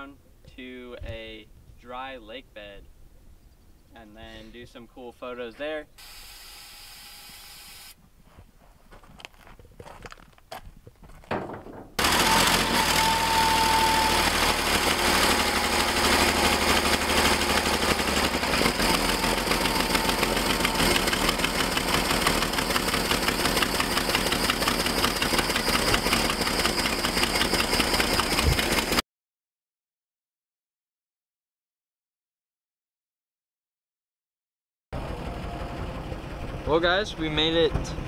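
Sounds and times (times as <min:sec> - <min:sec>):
truck engine running: 0:12.0 - 0:29.0, 0:35.0 - 0:38.0.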